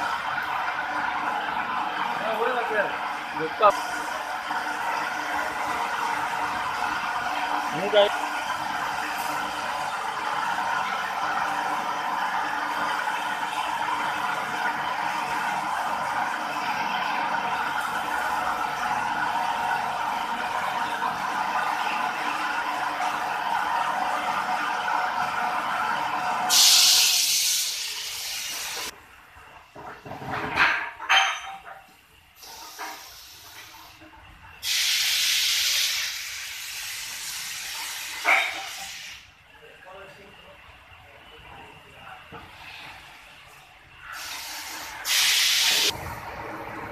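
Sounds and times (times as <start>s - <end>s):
machinery humming and whirring: 0.0s - 30.2s, 39.2s - 46.9s
pressure hissing out: 26.5s - 28.9s, 32.4s - 34.0s, 34.6s - 39.3s, 44.1s - 46.0s.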